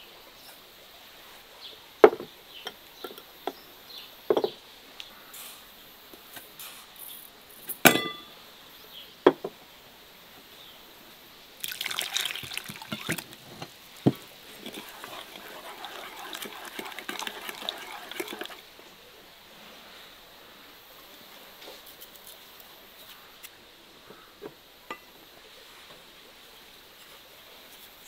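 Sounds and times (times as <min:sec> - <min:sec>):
kitchenware clinking: 0:07.7 - 0:08.3
water pouring into vessel: 0:11.6 - 0:18.7.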